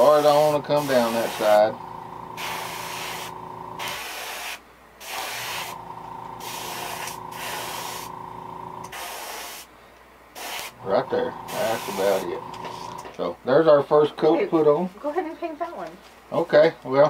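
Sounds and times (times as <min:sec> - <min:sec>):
airbrush hissing bursts: 0:00.0 - 0:05.8, 0:06.4 - 0:08.2, 0:08.8 - 0:09.7, 0:10.4 - 0:13.0
steady hum: 0:00.0 - 0:13.5.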